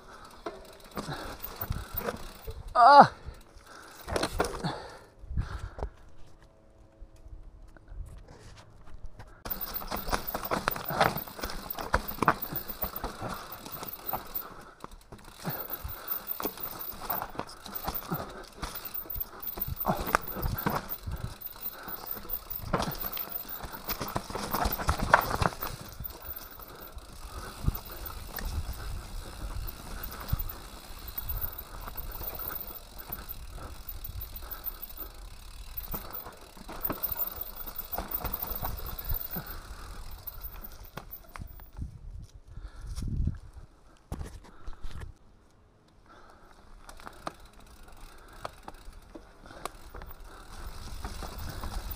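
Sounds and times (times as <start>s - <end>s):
bike tyres rolling over stones: 0.0s - 6.3s, 9.4s - 41.9s, 46.1s - 51.9s
bike frame knocking and rattling: 0.1s - 2.8s, 9.4s - 41.8s.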